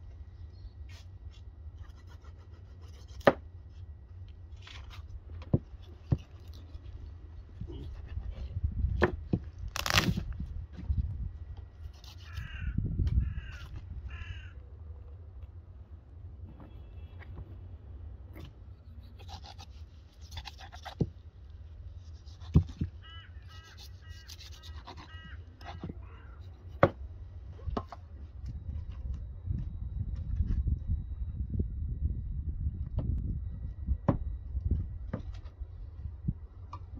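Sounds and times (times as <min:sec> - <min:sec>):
low wind rumble on microphone: 0:03.5 - 0:16.5, 0:20.2 - 0:36.9
crows cawing: 0:12.2 - 0:14.6, 0:23.0 - 0:26.4.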